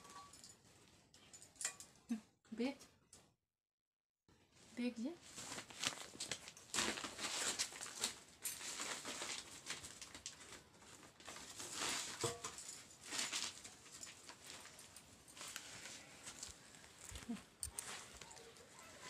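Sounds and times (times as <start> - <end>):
paper sack rustling: 5.3 - 17.0.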